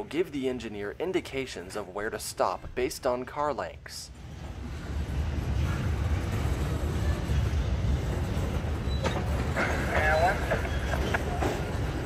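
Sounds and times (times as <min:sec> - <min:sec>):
freight cars rolling on track: 0:04.2 - 0:12.0.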